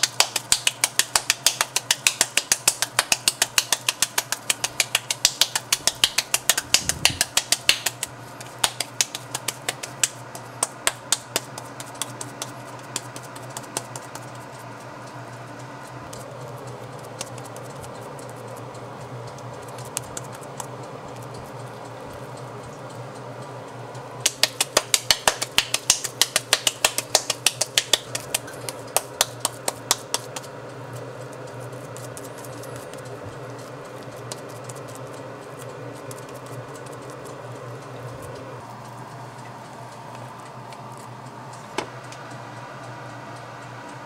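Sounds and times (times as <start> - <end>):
hands slapping meat patty: 0.0 - 14.8, 17.1 - 17.7, 24.2 - 30.5.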